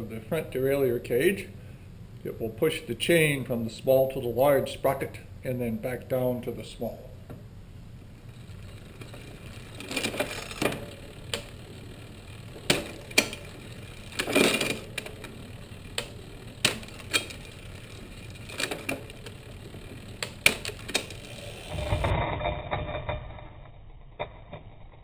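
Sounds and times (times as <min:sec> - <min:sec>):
bicycle chain running: 0:08.2 - 0:22.1
rattling chain scrape: 0:08.3 - 0:20.1, 0:20.7 - 0:22.4.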